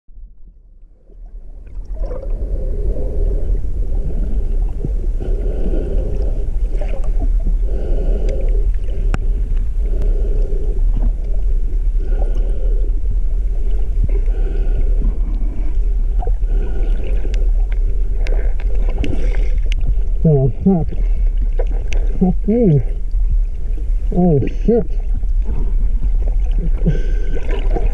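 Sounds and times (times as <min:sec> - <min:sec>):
low rumble of water: 0:00.1 - 0:27.9
pilot whale calls underwater: 0:20.1 - 0:23.1.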